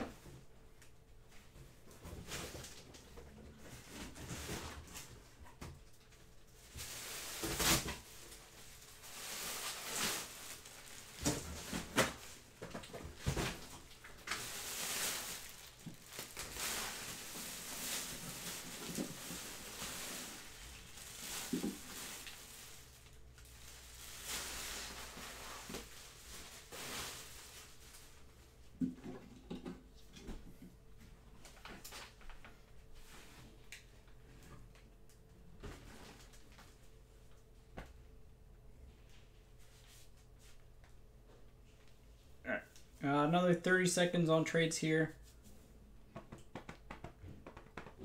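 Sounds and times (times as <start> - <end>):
rustling: 6.6 - 28.3
clicks and taps of objects: 46.1 - 48.0.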